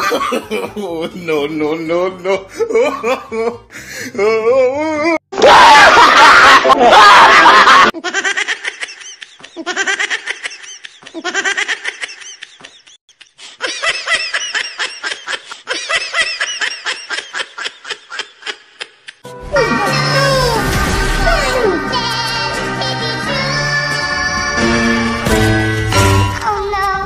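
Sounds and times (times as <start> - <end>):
person laughing: 0.0 - 5.2, 5.8 - 19.9
loud scream: 5.4 - 7.9
music: 19.2 - 27.0.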